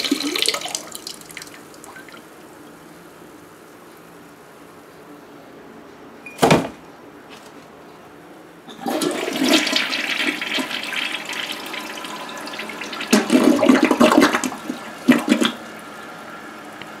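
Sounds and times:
toilet flushing: 0.0s - 2.4s, 8.7s - 17.0s.

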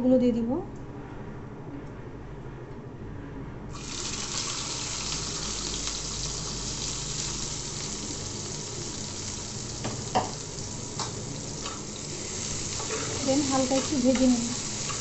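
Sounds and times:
onions sizzling in hot oil: 3.7s - 15.0s.

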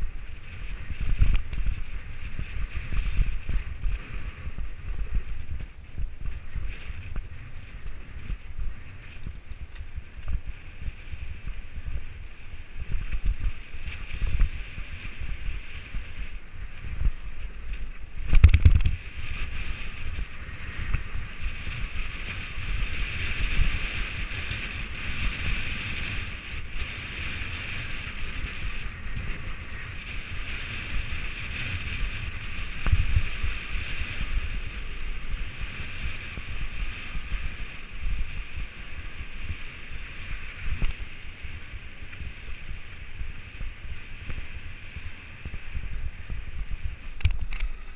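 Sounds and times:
bike tyre rumble and rattling: 0.0s - 47.9s
wind noise on microphone: 0.0s - 47.9s.

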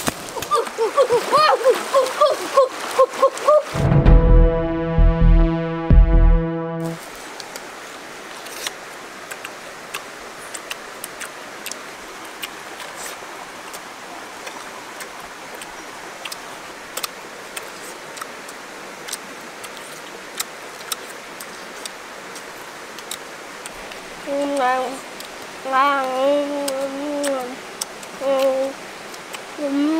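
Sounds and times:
steady outdoor hiss: 0.0s - 5.0s, 6.8s - 29.9s
mouth clicks and smacks while eating: 8.4s - 29.5s.

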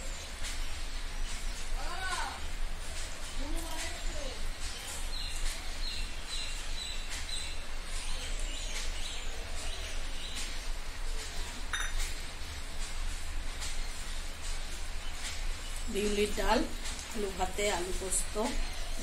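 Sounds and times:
stainless steel dishes clinking: 11.7s - 12.1s.

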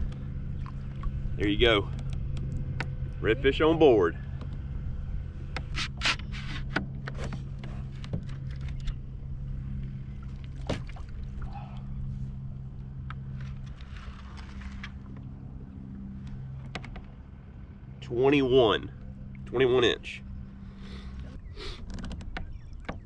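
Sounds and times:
steady low hum: 0.0s - 23.0s
soft rustle: 13.3s - 15.2s.

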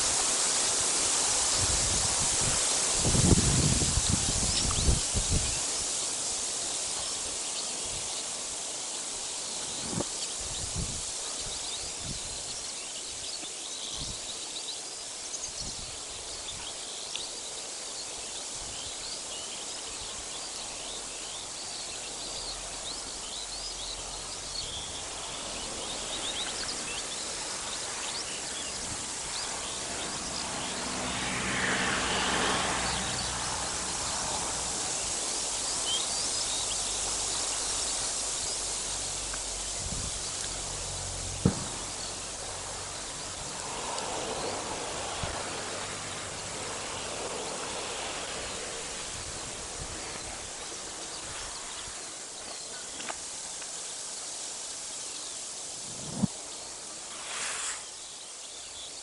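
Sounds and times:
small birds chirping: 0.0s - 31.7s, 32.5s - 59.0s
steady hiss: 0.0s - 59.0s
rush of noise: 24.4s - 52.3s, 55.6s - 56.4s
low thumps: 41.4s - 42.2s.

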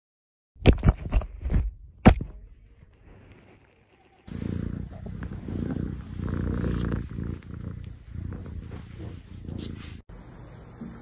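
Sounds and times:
cat purring: 3.1s - 10.0s.

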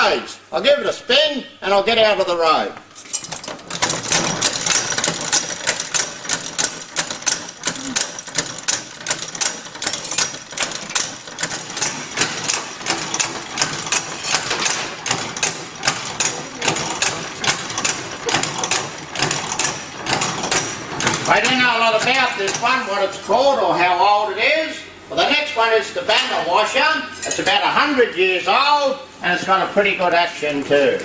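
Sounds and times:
hand-cranked washing machine clacking: 3.2s - 22.8s.

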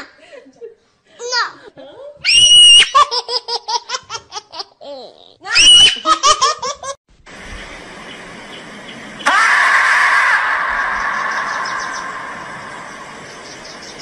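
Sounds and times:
high-pitched hysterical laughter: 2.3s - 4.8s, 5.4s - 7.0s
outdoor background hiss: 6.4s - 9.8s, 10.4s - 14.0s.

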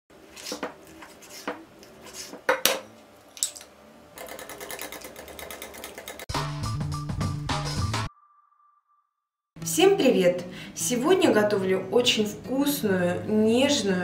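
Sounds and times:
whisk beating in glass bowl: 4.2s - 6.3s.

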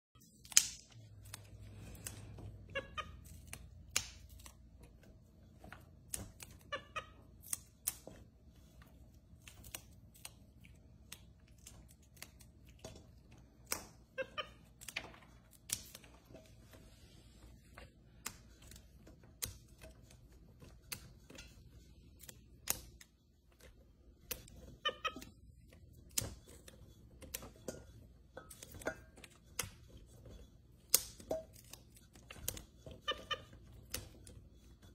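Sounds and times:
green beans snapping: 0.3s - 2.4s, 3.2s - 4.7s, 7.3s - 8.2s, 9.3s - 12.8s.

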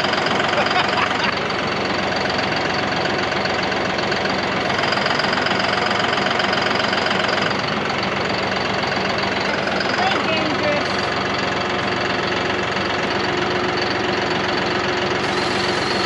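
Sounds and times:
tractor engine running: 0.0s - 16.0s.

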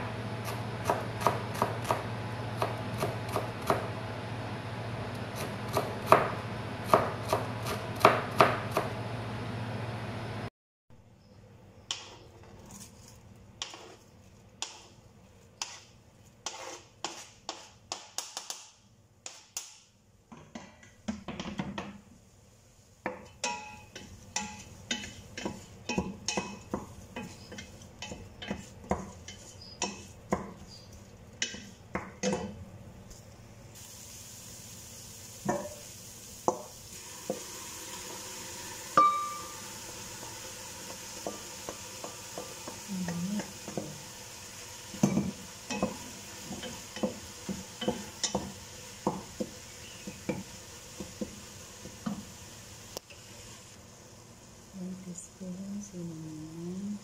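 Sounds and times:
frying sizzle: 0.0s - 10.5s, 21.2s - 56.4s
wooden spoon scraping a pot: 12.3s - 14.4s, 15.6s - 17.8s, 24.0s - 31.8s.

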